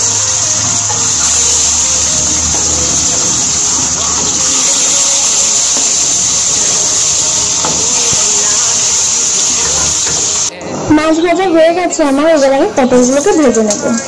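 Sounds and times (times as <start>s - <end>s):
fish sizzling in hot oil: 0.0s - 10.5s.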